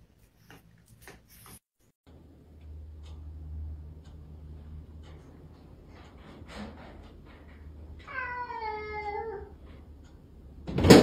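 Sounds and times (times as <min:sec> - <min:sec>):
cat meowing: 0:08.0 - 0:09.6.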